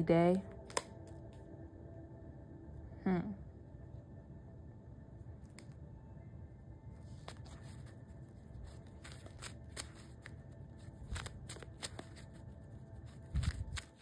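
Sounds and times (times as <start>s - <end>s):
cards being shuffled: 0.5s - 1.4s, 7.0s - 14.0s.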